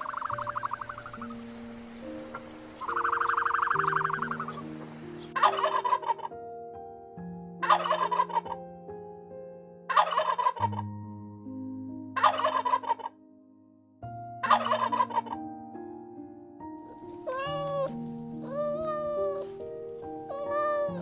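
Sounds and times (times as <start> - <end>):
large fowl pulsing call: 0.0 - 6.4, 7.6 - 8.6, 9.9 - 10.8, 12.2 - 13.2, 14.4 - 15.4, 17.2 - 19.6
soft music with held chords: 0.0 - 21.0.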